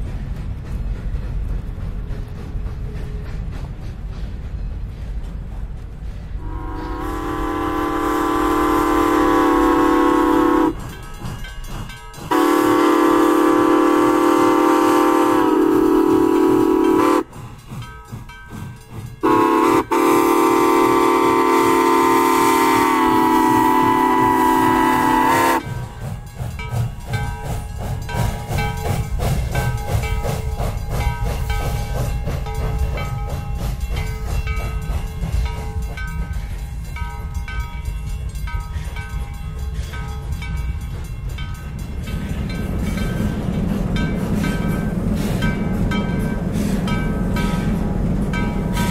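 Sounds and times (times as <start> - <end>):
train clicking over rails: 0.0 - 48.9
steam locomotive chime whistle: 6.4 - 33.2, 44.4 - 48.9.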